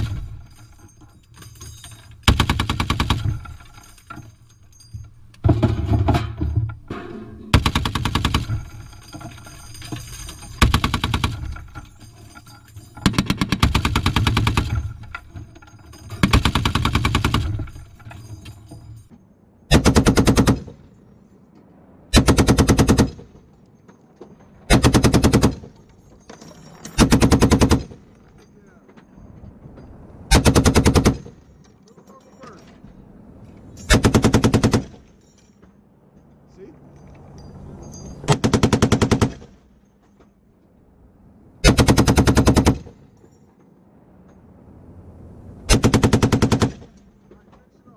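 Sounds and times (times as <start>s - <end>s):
machine gun bursts: 2.2s - 4.0s, 7.5s - 12.0s, 13.0s - 15.1s, 15.9s - 18.2s, 19.7s - 20.8s, 22.1s - 23.3s, 24.7s - 25.7s, 27.0s - 28.0s, 30.3s - 31.4s, 33.9s - 35.0s, 38.3s - 39.6s, 41.6s - 43.0s, 45.7s - 47.0s.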